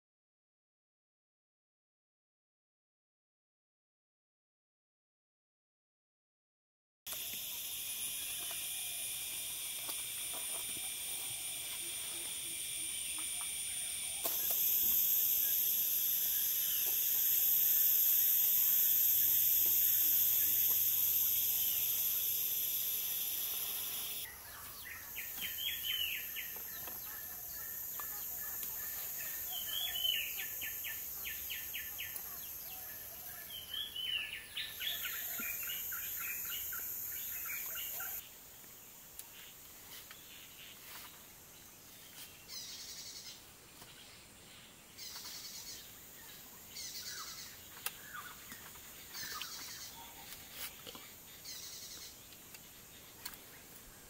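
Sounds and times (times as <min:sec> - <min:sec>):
high-pitched insect drone: 0:07.1 - 0:38.2.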